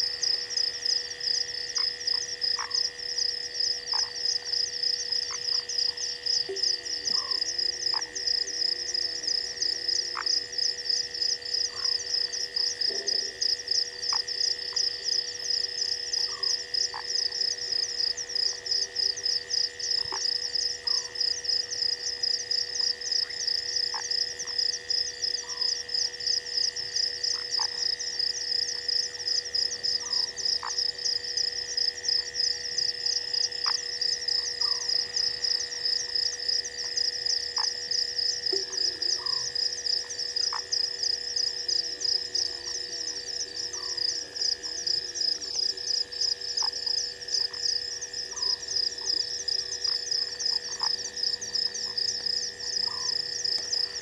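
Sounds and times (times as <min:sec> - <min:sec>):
constant whine: 0:00.0 - 0:54.0
frog calls: 0:00.0 - 0:54.0
high-pitched insect pulsing: 0:00.0 - 0:54.0.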